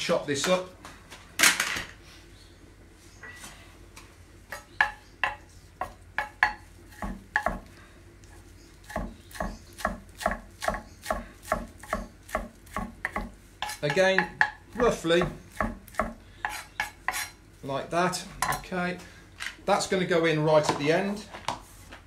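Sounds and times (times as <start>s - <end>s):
knife chopping on wooden board: 4.5s - 7.7s, 8.8s - 14.6s, 15.2s - 17.3s.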